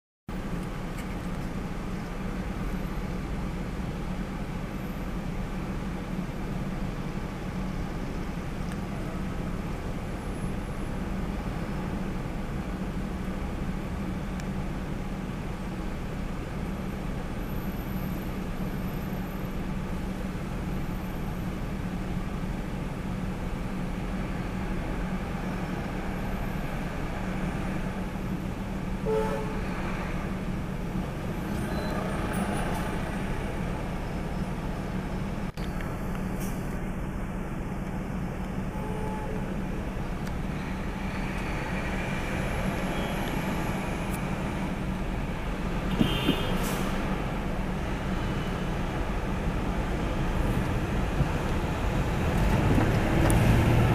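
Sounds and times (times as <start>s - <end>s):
city street traffic: 0.3s - 53.9s
low engine hum: 0.3s - 53.9s
short horn toot: 29.0s - 29.7s, 38.7s - 39.5s.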